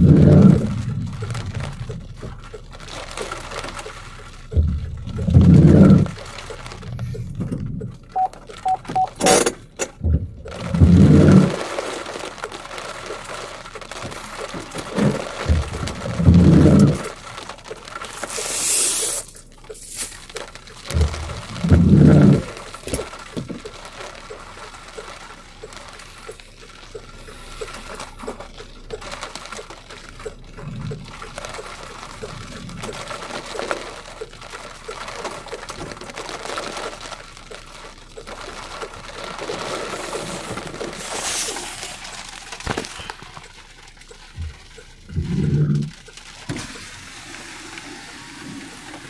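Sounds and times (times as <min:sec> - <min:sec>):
heavy rain on a car roof: 0:00.0 - 0:49.0.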